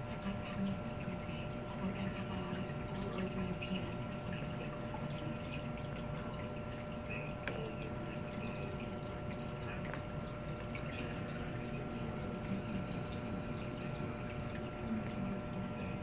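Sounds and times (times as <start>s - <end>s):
aquarium water trickling: 0.0s - 16.0s
drip clicks: 0.0s - 16.0s
faint hum: 0.0s - 16.0s.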